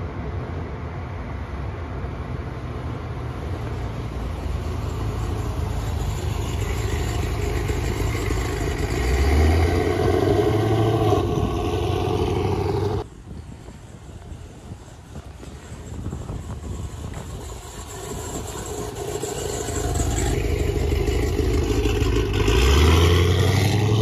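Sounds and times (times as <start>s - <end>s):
car engine passing by: 2.6s - 13.1s, 16.4s - 24.0s.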